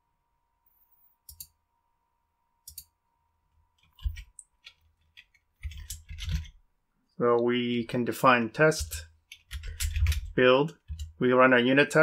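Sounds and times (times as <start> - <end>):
mouse and keyboard clicks: 1.3 - 1.6, 3.8 - 6.6.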